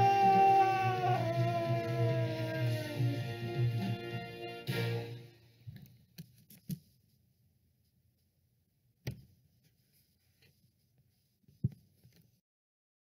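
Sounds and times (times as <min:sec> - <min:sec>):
faint handling noise: 0:05.6 - 0:08.4, 0:09.0 - 0:12.4.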